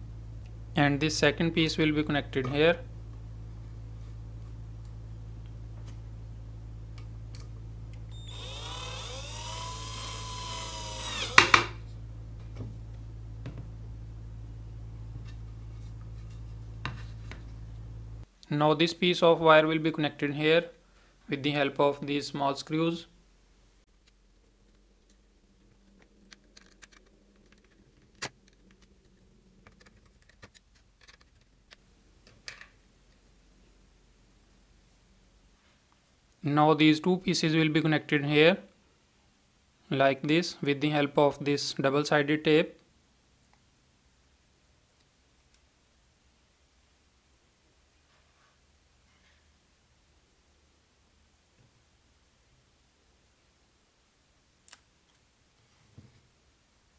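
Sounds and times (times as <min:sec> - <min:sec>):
drill motor whine: 0:08.1 - 0:11.8.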